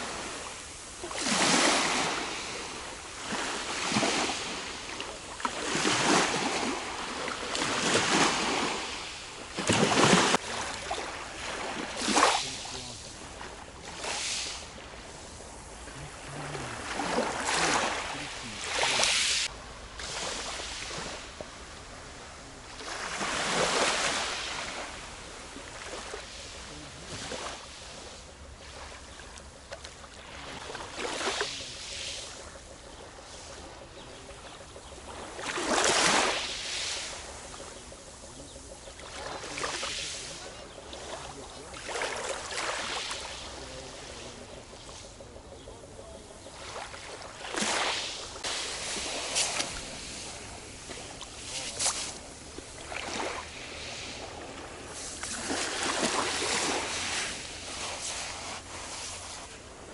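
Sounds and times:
small waves washing onto pebble shore: 0.0 - 27.8, 35.2 - 37.7, 39.1 - 45.1, 46.6 - 59.9.

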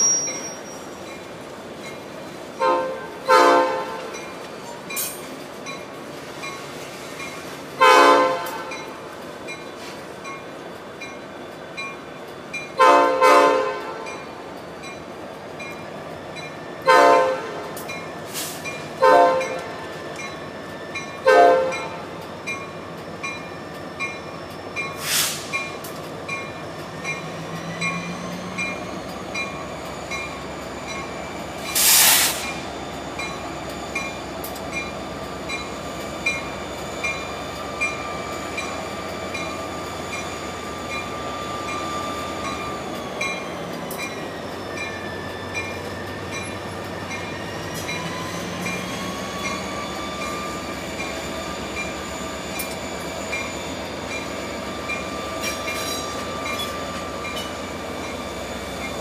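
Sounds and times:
freight train rumbling past: 0.0 - 59.0
locomotive air horn blasts: 2.6 - 4.1, 7.8 - 8.8, 12.8 - 14.1, 16.8 - 17.8, 19.0 - 19.8, 21.2 - 22.0
sharp hiss bursts: 31.7 - 32.6.

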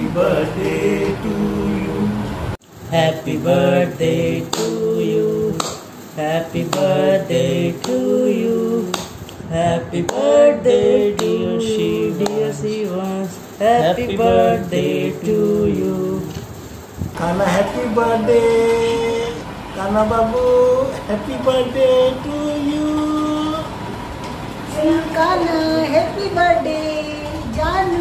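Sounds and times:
two men singing: 0.0 - 16.4, 17.1 - 23.7.

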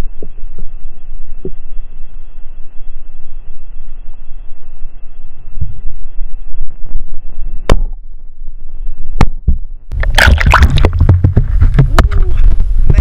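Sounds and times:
muffled underwater rumble: 0.0 - 13.0
water splashing: 9.9 - 12.2.

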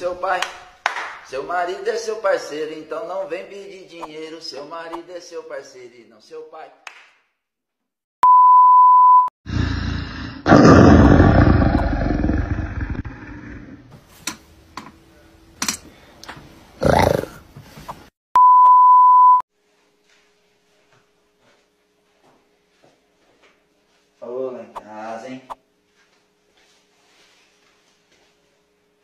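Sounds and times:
loud roaring noise: 9.5 - 13.8
steady beep tones: 18.4 - 19.4.

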